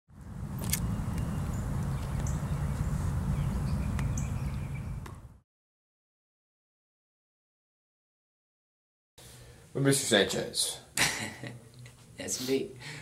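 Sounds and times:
wind rumble on microphone: 0.2 - 5.4
bird chirping: 0.6 - 5.2.

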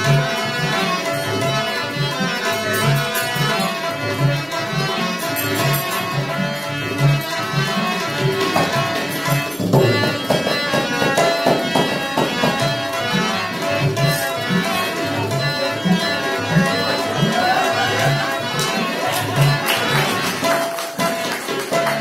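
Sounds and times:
sarangi melody: 0.0 - 22.0
tabla rhythm: 0.0 - 22.0.

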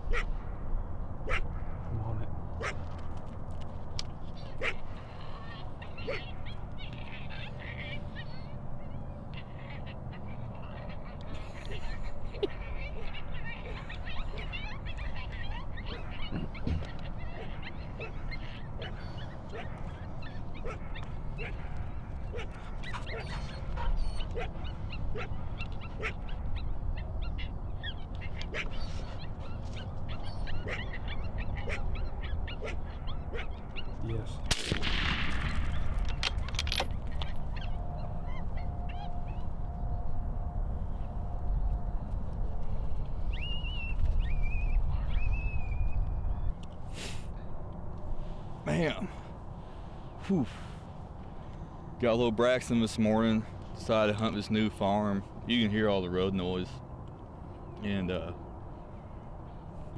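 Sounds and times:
coyotes barking and yipping: 0.0 - 59.9
dog barking: 1.2 - 1.5, 2.6 - 2.8, 4.6 - 4.8, 6.0 - 6.4, 12.4 - 19.8, 20.6 - 26.4, 29.7 - 33.9.

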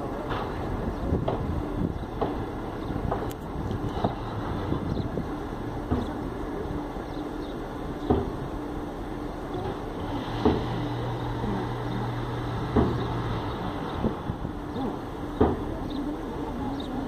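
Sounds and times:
sharp knocks: 10.4 - 10.8, 12.7 - 13.2.

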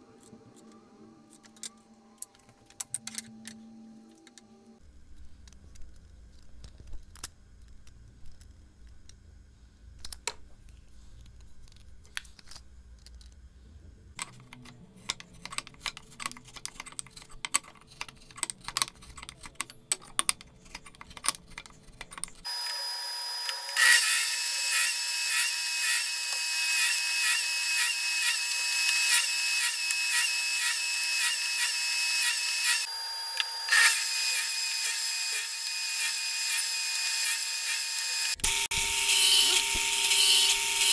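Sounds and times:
wooden pieces clicking and tapping: 14.2 - 22.5
table saw running: 22.5 - 40.9.

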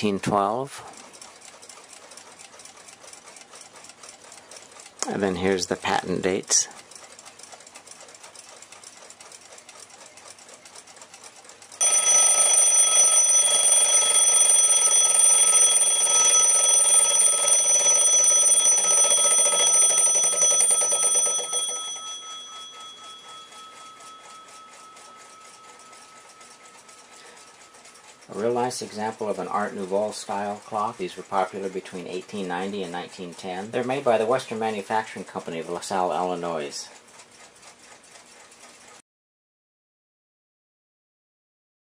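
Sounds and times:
alarm clock ticking: 0.0 - 38.2
alarm bell ringing: 11.8 - 30.0.

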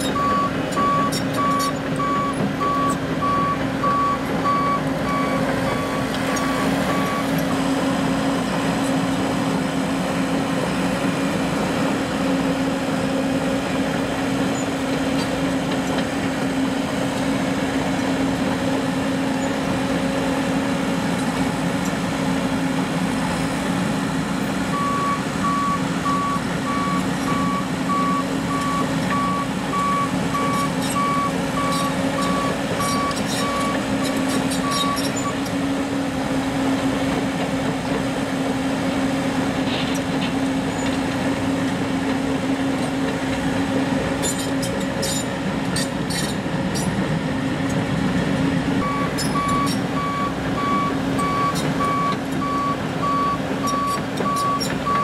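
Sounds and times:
diesel engine running: 0.0 - 55.0
reversing alarm beeps: 0.1 - 7.3, 24.7 - 33.8, 48.8 - 55.0
steel tracks clicking and squeaking: 44.2 - 47.0.

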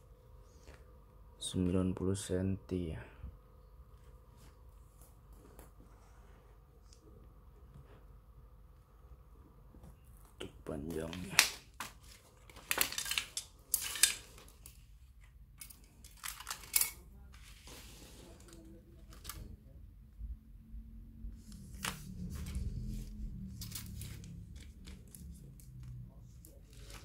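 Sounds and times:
plastic parts clicking and rattling: 11.0 - 17.1.

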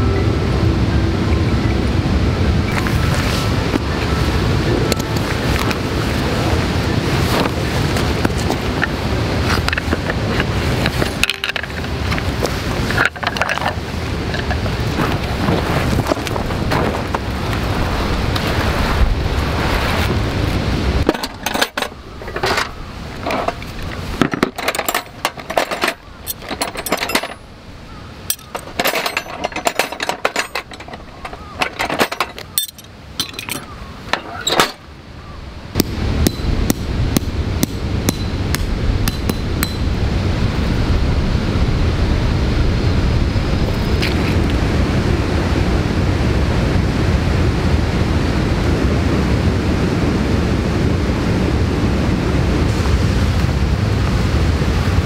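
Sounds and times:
loud rushing noise: 0.0 - 25.5
metal tent pegs clinking: 7.3 - 17.2, 21.0 - 27.6, 28.2 - 34.9, 35.8 - 39.9.

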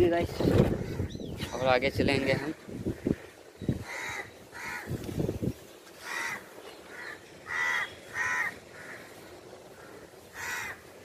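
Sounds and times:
crows cawing: 0.8 - 5.3, 5.9 - 11.0.

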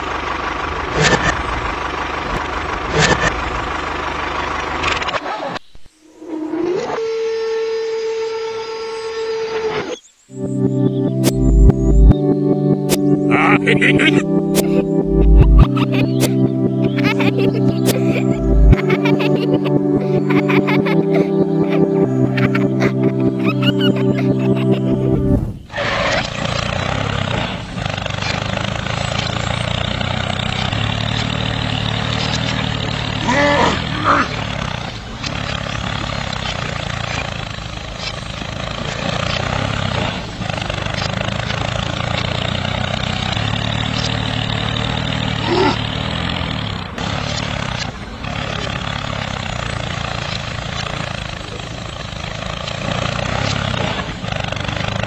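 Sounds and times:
model tractor motor hum: 0.0 - 5.4, 25.6 - 55.0
cultivator scraping through sand: 25.7 - 51.4.

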